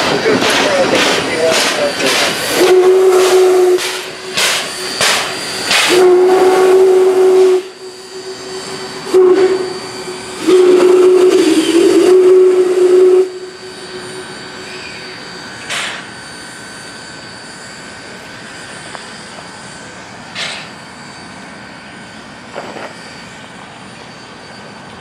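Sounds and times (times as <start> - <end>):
locomotive exhaust chuffs: 0.0 - 25.0
steam hissing: 0.0 - 25.0
steam whistle blasts: 2.5 - 16.4.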